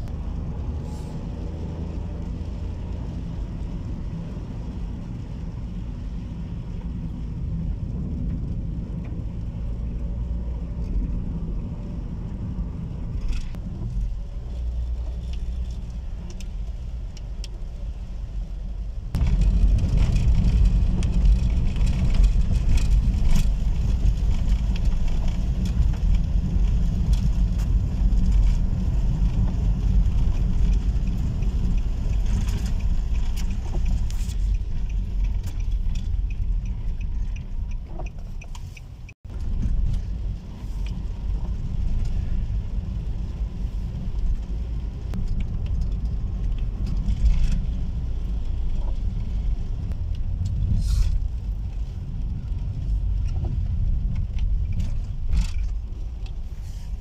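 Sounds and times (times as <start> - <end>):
car road noise rumble: 0.0 - 57.0
light ticks: 14.9 - 17.6, 19.4 - 56.6.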